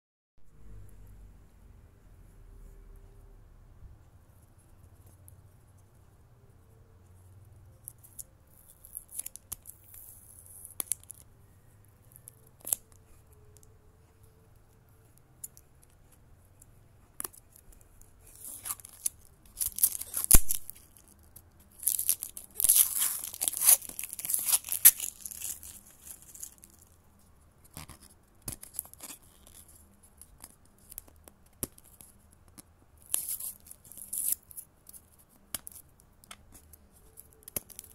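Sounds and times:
plastic shrink-wrap tearing: 18.3s - 26.9s.

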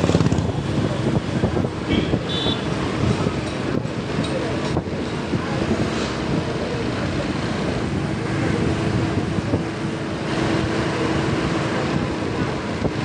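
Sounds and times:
motorbike engine running: 0.0s - 1.3s
road traffic noise: 0.0s - 13.0s
wind rushing over microphone: 0.0s - 13.0s.

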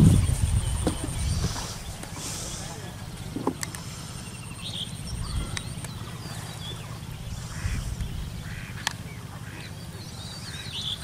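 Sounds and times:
small birds chirping: 0.0s - 11.0s
ducks quacking: 5.2s - 11.0s.

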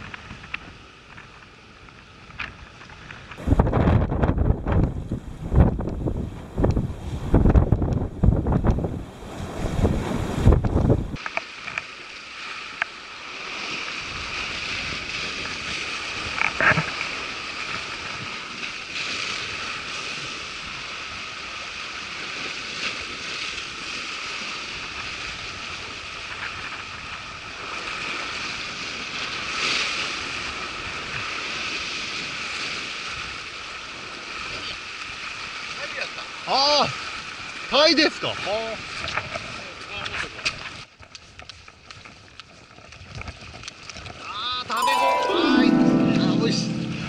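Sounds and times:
wind buffeting microphone: 3.4s - 11.2s.

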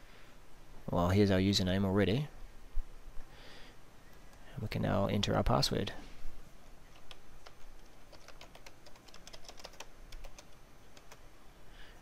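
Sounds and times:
keyboard typing clicks: 6.9s - 11.2s.

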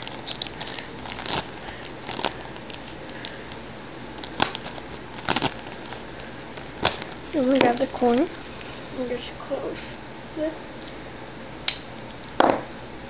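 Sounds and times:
plastic bag crinkling and rustling: 0.0s - 9.2s.

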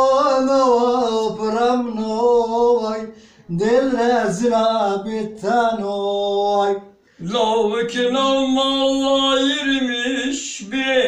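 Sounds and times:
man singing unaccompanied: 0.0s - 11.0s
man breathing: 3.1s - 3.5s, 7.0s - 7.2s.

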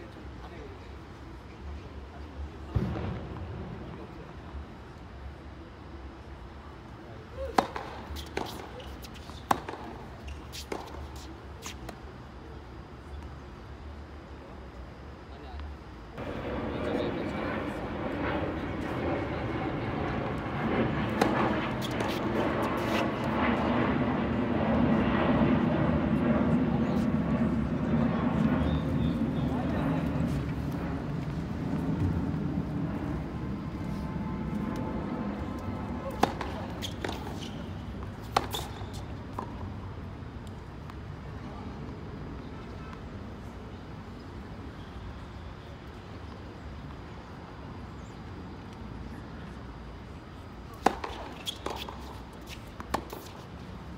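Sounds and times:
low outdoor background rumble: 0.0s - 53.9s
tennis ball struck with racket: 36.1s - 37.5s, 50.8s - 52.0s.

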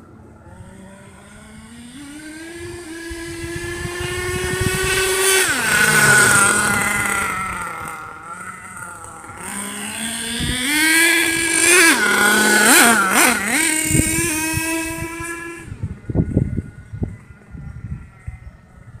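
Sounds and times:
small model engine running: 0.4s - 17.2s.

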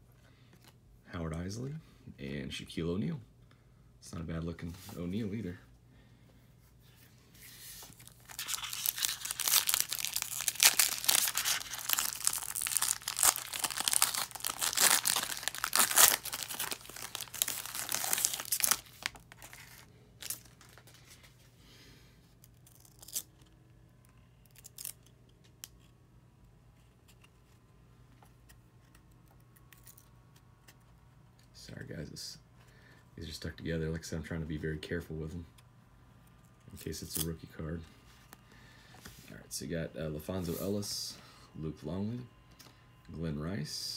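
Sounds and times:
foil wrapper tearing and crinkling: 7.9s - 20.9s, 22.5s - 23.5s, 24.5s - 25.0s.

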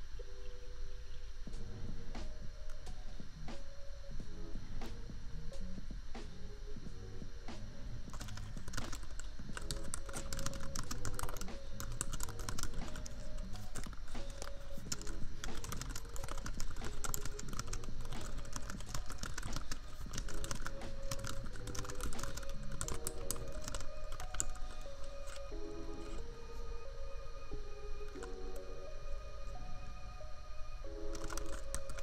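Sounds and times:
laptop fan hum: 0.0s - 32.0s
soft lofi music: 0.0s - 32.0s
rapid typing on keyboard: 8.1s - 26.2s, 31.0s - 32.0s.

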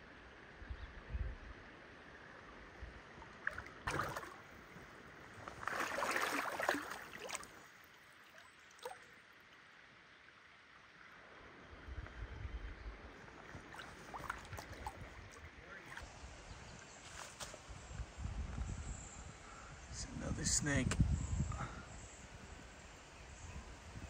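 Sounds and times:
stream trickling: 3.0s - 11.8s, 13.0s - 17.3s
creek water splashing: 3.1s - 9.7s, 13.2s - 16.1s.

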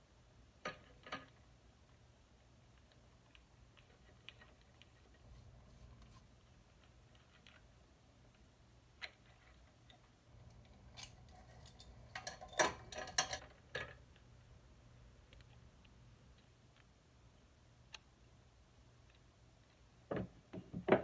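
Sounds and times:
small metal parts clicking and rattling: 9.0s - 14.2s.

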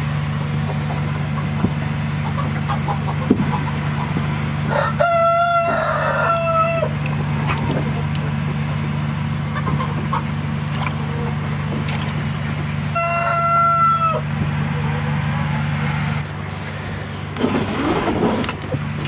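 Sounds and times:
steady low hum: 0.0s - 19.0s
rooster crowing: 4.6s - 6.9s, 12.9s - 14.3s.

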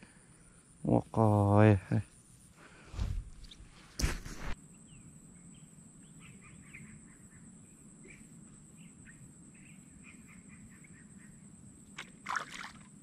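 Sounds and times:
small birds chirping: 4.6s - 12.0s.

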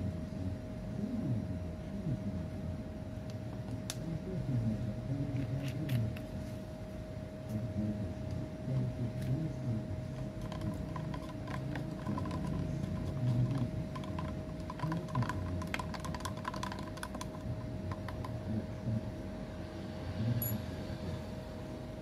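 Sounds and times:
faint steady hum: 0.0s - 22.0s
stick tapping plastic cup: 10.2s - 18.4s.

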